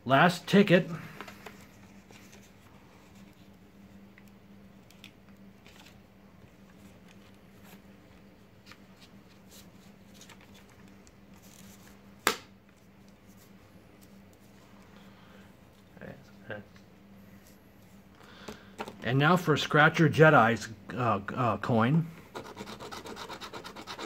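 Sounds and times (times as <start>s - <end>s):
low steady hum: 0.0s - 24.0s
scratching lottery ticket: 22.3s - 24.0s.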